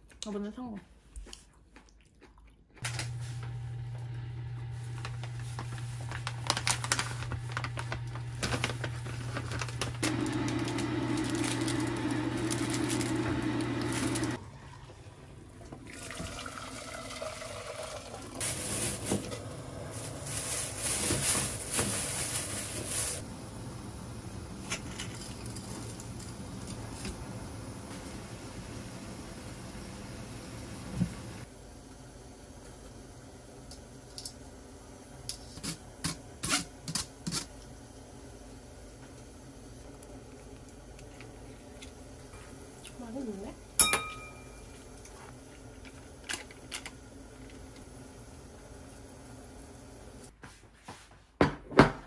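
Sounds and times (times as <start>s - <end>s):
hot water pouring into pot: 9.6s - 19.0s.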